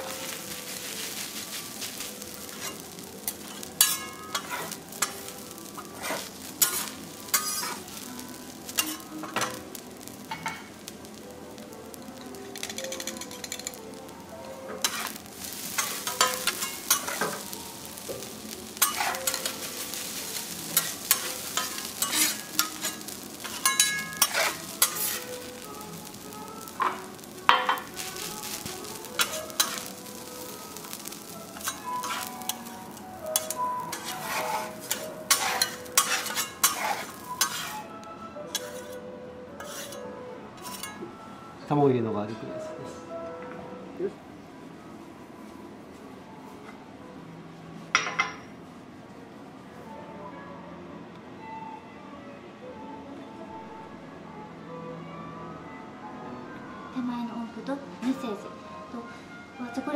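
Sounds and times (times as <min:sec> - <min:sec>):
food sizzling on griddle: 0:00.0 - 0:39.0, 0:39.6 - 0:41.0
metal spatulas scraping and clacking: 0:02.5 - 0:05.2, 0:05.8 - 0:07.9, 0:08.7 - 0:09.6, 0:12.6 - 0:13.8, 0:14.7 - 0:17.5, 0:18.8 - 0:25.3, 0:29.2 - 0:29.9, 0:31.6 - 0:32.6, 0:33.4 - 0:37.9, 0:38.5 - 0:39.0, 0:39.6 - 0:40.0, 0:40.6 - 0:41.0.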